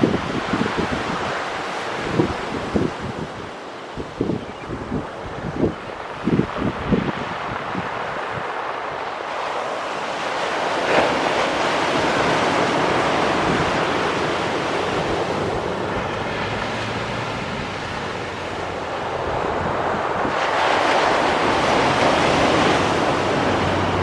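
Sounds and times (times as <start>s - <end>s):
distant jet engine roar: 0.0s - 24.0s
wind on microphone: 0.0s - 24.0s
surf breaking on seawall: 5.5s - 24.0s.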